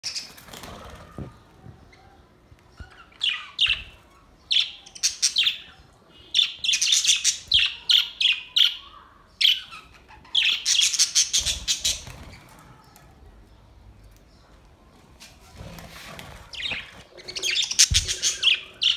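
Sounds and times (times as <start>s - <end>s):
wings fluttering: 0.0s - 1.4s, 11.4s - 12.8s, 15.4s - 18.6s
budgerigars chirping and chattering: 2.8s - 12.3s, 16.5s - 18.9s.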